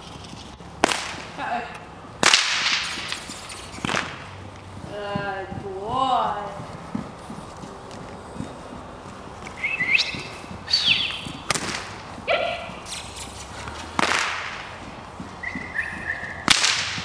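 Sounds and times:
whip cracking: 0:00.8 - 0:01.4, 0:02.2 - 0:04.4, 0:09.6 - 0:17.0.

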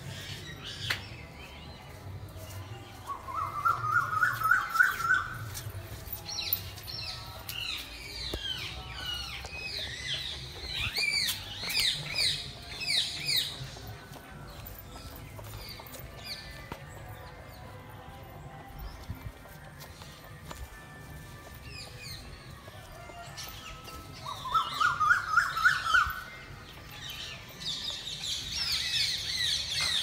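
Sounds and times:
birds warbling trill: 0:22.9 - 0:30.0.

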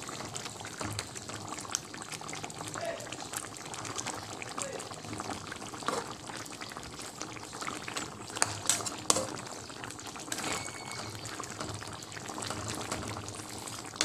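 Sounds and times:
sauce bubbling in a pan: 0:00.0 - 0:14.0.

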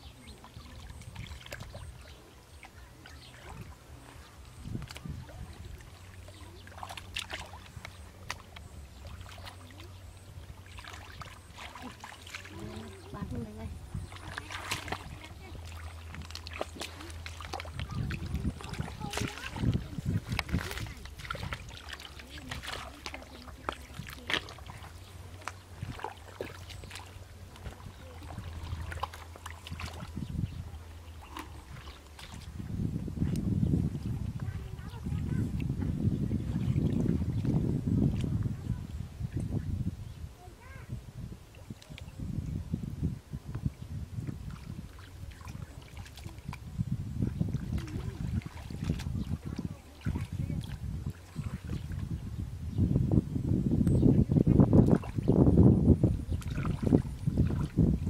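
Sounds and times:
hands splashing in muddy water: 0:00.3 - 0:13.3, 0:14.0 - 0:34.4, 0:44.2 - 0:52.2, 0:56.2 - 0:58.0.

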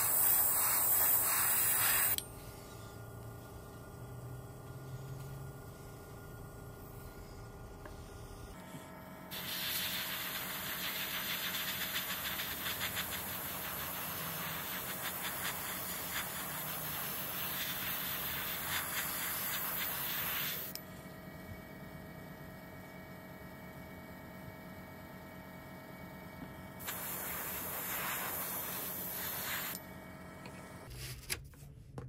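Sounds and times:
airbrush spraying hiss: 0:00.0 - 0:02.2, 0:09.3 - 0:20.8, 0:26.8 - 0:29.8.

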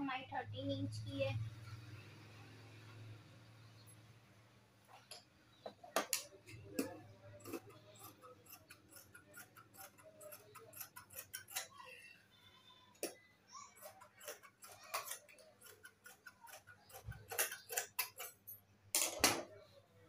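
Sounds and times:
scissors snipping fabric: 0:06.0 - 0:11.8, 0:13.8 - 0:18.4.

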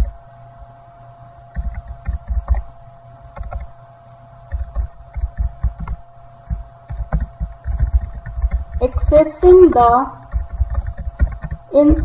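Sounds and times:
faint steady hum: 0:00.0 - 0:12.0
typing on computer keyboard: 0:01.5 - 0:02.7, 0:03.4 - 0:03.7, 0:04.5 - 0:11.7.

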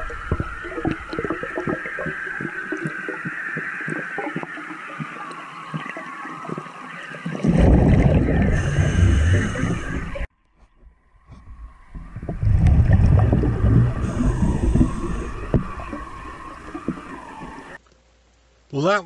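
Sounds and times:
underwater clicks and crackles: 0:00.0 - 0:18.0
diver exhaling bubbles: 0:07.4 - 0:10.3, 0:12.0 - 0:17.8
steady hiss: 0:13.4 - 0:19.0.

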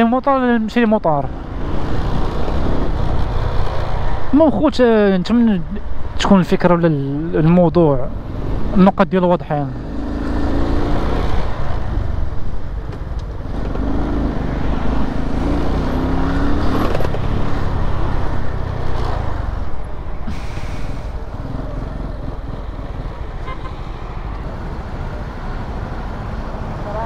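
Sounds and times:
motorcycle engine: 0:09.6 - 0:27.0.

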